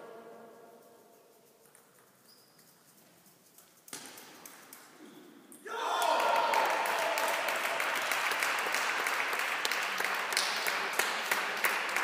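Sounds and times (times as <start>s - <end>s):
spectators applauding: 5.8s - 12.0s.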